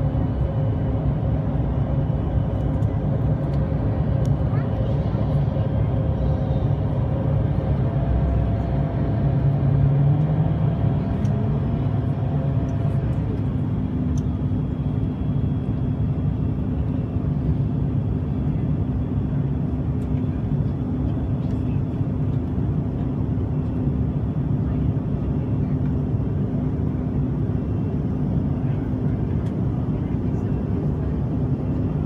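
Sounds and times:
airplane cabin engine rumble: 0:00.0 - 0:32.0.

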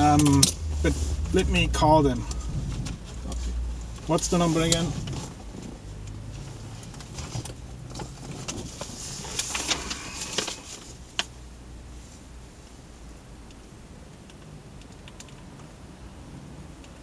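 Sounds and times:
low steady hum: 0:00.0 - 0:17.0
handling rustles and clicks: 0:02.2 - 0:11.3.

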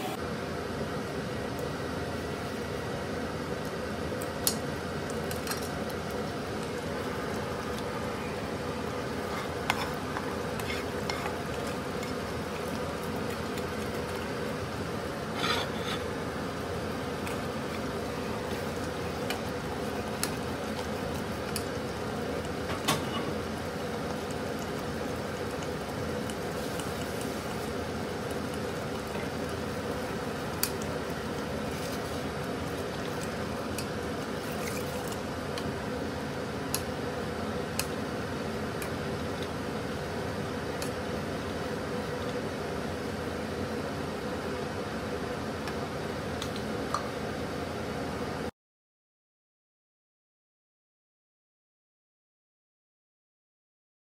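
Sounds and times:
ladle stirring thick food in pot: 0:05.2 - 0:16.3.

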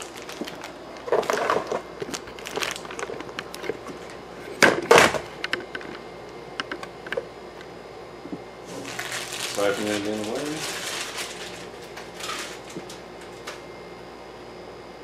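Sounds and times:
rustling and scraping: 0:08.7 - 0:13.0.

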